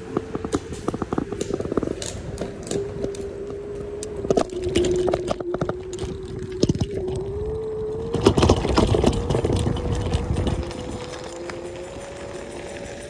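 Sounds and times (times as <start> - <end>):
wheeled vehicle rolling on rough path: 0.0 - 13.0
rattling and clicking: 7.9 - 13.0.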